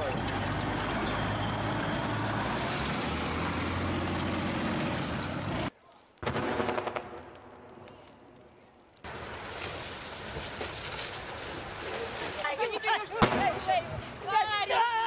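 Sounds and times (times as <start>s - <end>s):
tracked vehicle engine and tracks: 0.0s - 5.8s
gunshots: 6.2s - 7.3s.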